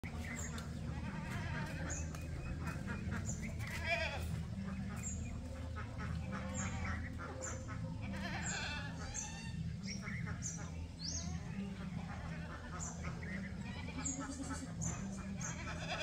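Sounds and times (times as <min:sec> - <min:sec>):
goats bleating: 0:00.2 - 0:02.2, 0:02.8 - 0:04.7, 0:06.2 - 0:09.6, 0:11.8 - 0:16.0.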